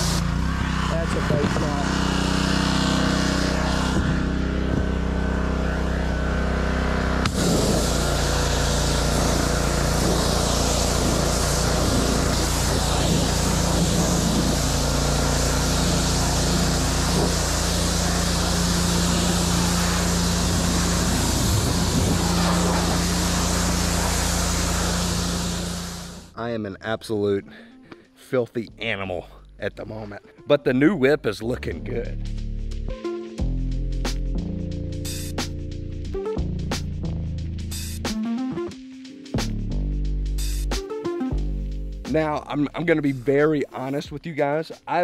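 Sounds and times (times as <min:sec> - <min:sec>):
high-pressure water spray hissing: 0:00.0 - 0:26.3
pressure washer engine running: 0:00.0 - 0:26.3.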